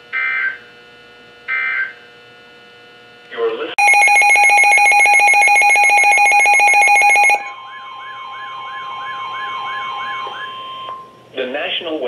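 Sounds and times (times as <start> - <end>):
warbling warning tone: 3.8 - 11.1
rapidly pulsing alarm tone: 3.8 - 11.2.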